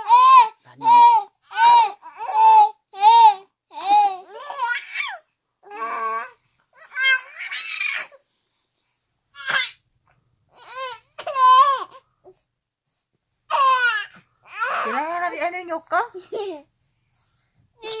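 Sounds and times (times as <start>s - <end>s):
baby cooing and squealing: 0.0s - 8.2s, 9.4s - 9.8s, 10.5s - 12.0s, 13.5s - 15.0s.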